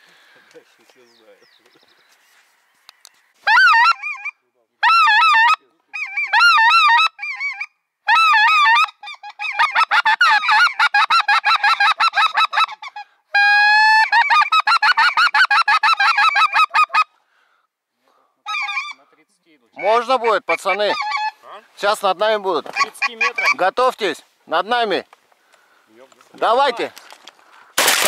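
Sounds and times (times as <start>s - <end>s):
geese honking and clucking: 2.5s - 17.2s, 18.4s - 24.0s.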